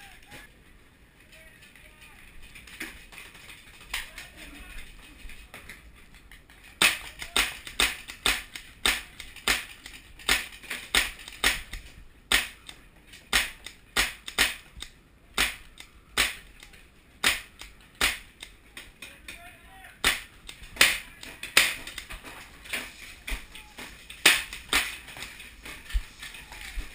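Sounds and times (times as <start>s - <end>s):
paintball markers firing: 6.8s - 18.9s, 20.0s - 22.2s, 24.1s - 25.4s.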